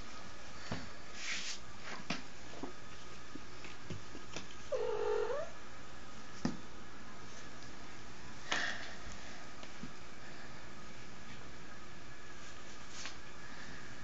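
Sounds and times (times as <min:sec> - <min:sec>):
kitten growling: 0:04.7 - 0:05.6.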